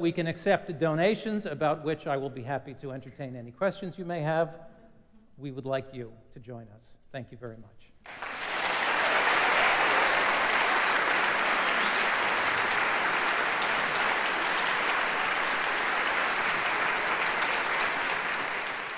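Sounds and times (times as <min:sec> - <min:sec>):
audience clapping: 0:08.0 - 0:18.9.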